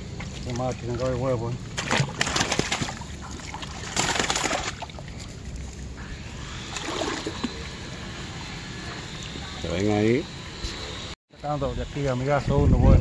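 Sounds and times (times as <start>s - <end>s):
river water sloshing and splashing: 1.7s - 5.8s.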